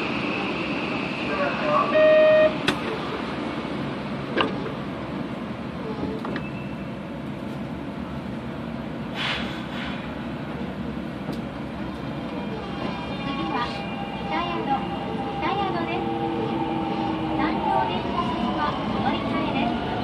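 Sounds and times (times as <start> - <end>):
train interior rumble: 0.0 - 20.0
brief hiss: 9.1 - 10.1.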